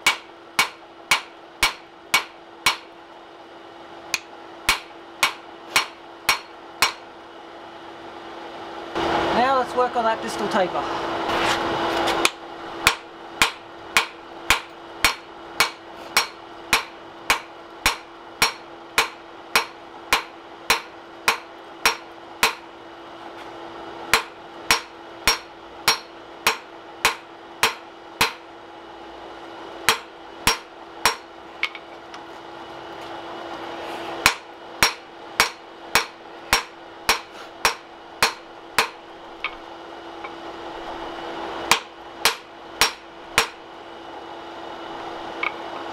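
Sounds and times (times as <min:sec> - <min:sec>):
hammer striking steel on anvil: 0:00.0 - 0:02.9, 0:04.1 - 0:07.0, 0:12.2 - 0:22.7, 0:24.1 - 0:28.5, 0:29.8 - 0:31.8, 0:34.2 - 0:39.6, 0:41.7 - 0:43.6
steady hum: 0:00.0 - 0:45.9.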